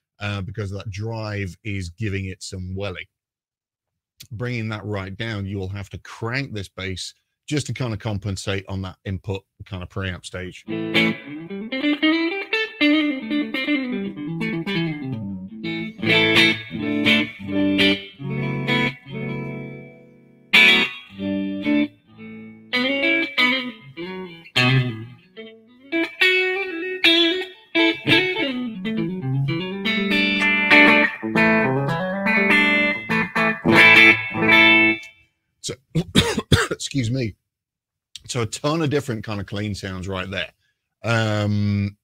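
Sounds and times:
clean electric guitar: 0:10.6 - 0:35.1.

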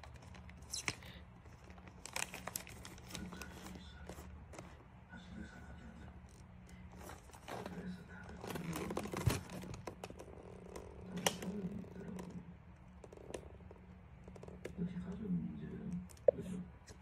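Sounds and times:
cat rustling paper: 0:00.0 - 0:12.2.

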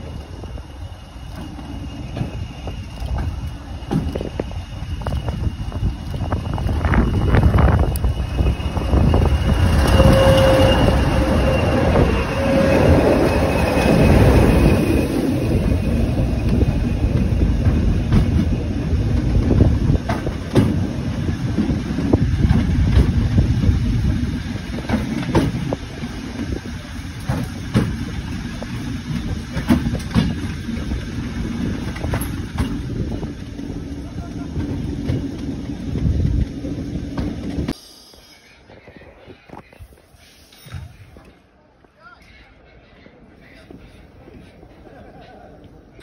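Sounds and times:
wheels squealing: 0:00.0 - 0:41.5
train rumbling on rails: 0:00.0 - 0:41.9, 0:42.5 - 0:46.0
wheels clacking over rail joints: 0:01.2 - 0:37.8.

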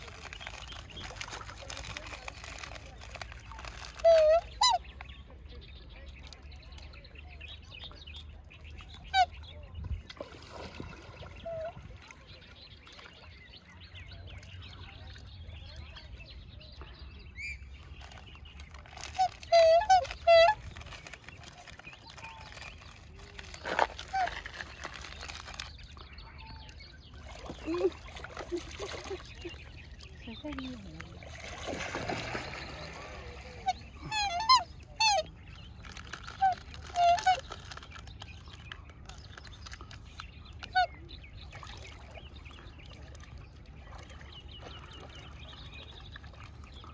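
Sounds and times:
birds chirping: 0:00.0 - 0:46.9
swans calling: 0:00.5 - 0:04.9, 0:18.8 - 0:21.2, 0:27.3 - 0:37.9.

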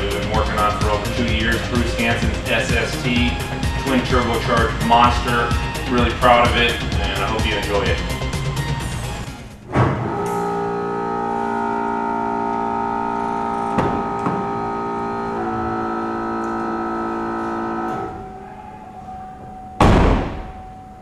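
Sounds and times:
low sustained string chord: 0:10.0 - 0:19.8.

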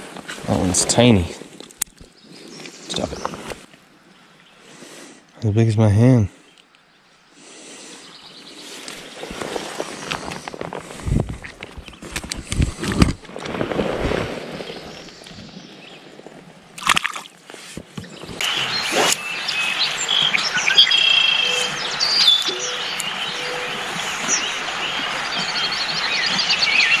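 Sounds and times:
songbirds singing and chirping: 0:01.8 - 0:13.0, 0:14.5 - 0:16.4, 0:17.8 - 0:27.0
rush of water: 0:18.3 - 0:27.0.

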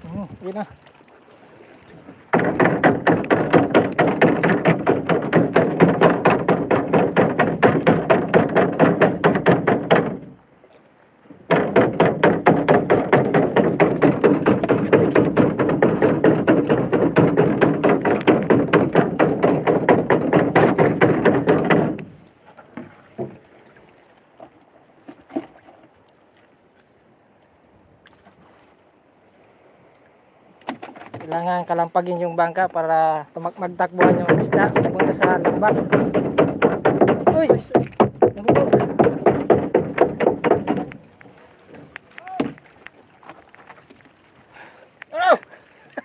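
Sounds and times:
rapid knocking on boat hull: 0:02.3 - 0:10.3, 0:11.5 - 0:22.2, 0:33.7 - 0:41.0.

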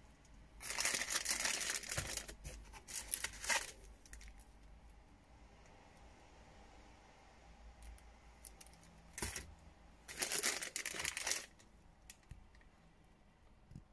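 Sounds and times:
plastic bag crinkling: 0:00.6 - 0:04.6, 0:08.4 - 0:09.5, 0:10.1 - 0:12.3.

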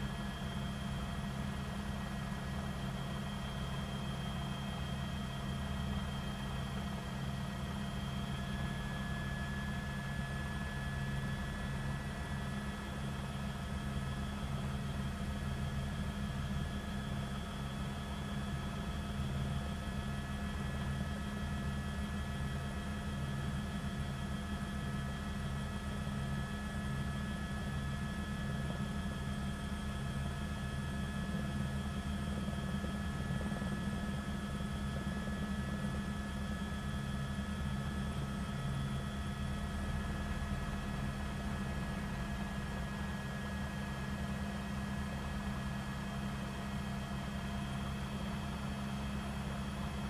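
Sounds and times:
helicopter rotor and engine drone: 0:00.0 - 0:50.0.

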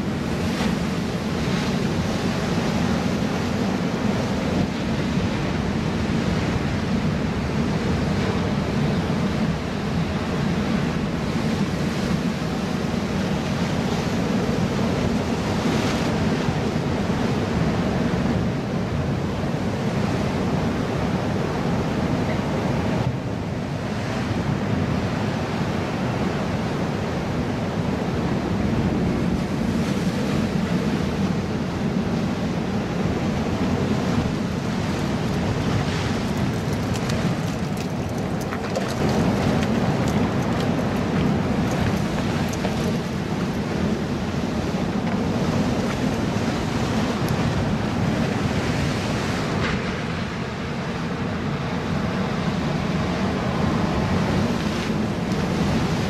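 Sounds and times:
ocean surf breaking on rocks: 0:00.0 - 0:56.0
wind buffeting microphone: 0:27.7 - 0:56.0.

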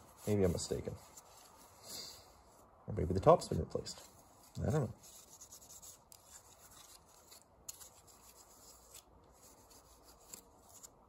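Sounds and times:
cloth rubbing on plastic: 0:00.0 - 0:01.9.

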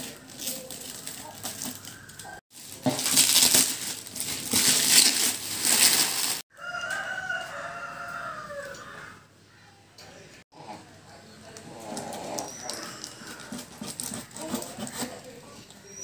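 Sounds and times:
plastic wrapping crinkling: 0:00.0 - 0:06.5.

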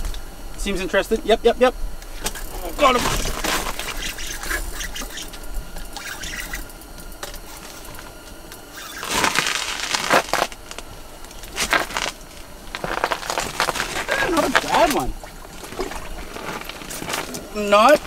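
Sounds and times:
water splashing and sloshing: 0:12.7 - 0:18.0.

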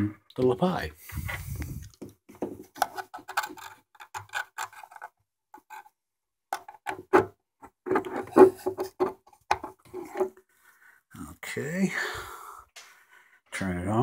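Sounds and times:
plug clicking and scraping in jack: 0:02.8 - 0:05.8.

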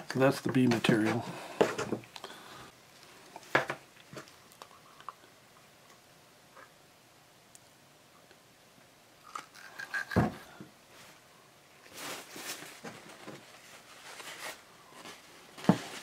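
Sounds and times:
paper towel rustling: 0:11.8 - 0:16.0.

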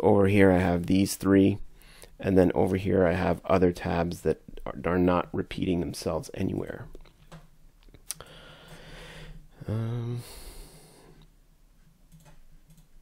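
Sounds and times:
man breathing out: 0:08.1 - 0:11.2
man humming: 0:09.6 - 0:11.2.

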